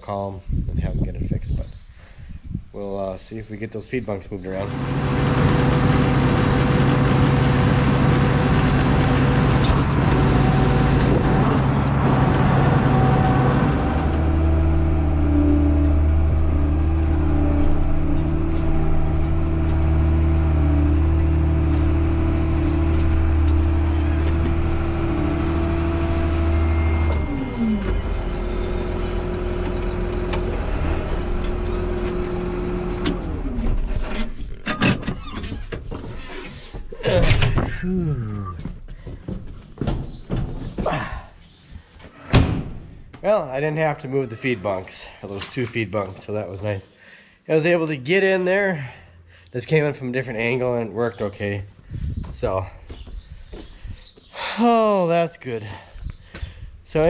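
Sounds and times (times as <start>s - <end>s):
tractor engine running: 4.5s - 35.3s
heavy deep drone: 4.6s - 33.9s.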